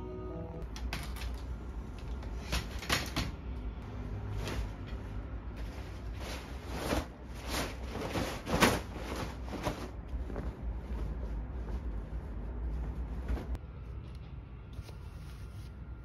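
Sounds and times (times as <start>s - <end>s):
fabric rustling: 4.3s - 13.6s.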